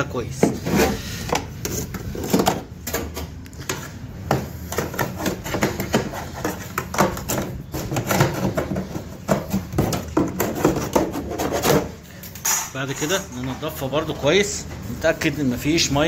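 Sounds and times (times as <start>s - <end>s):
hand tool scraping plastic: 0.4s - 12.7s.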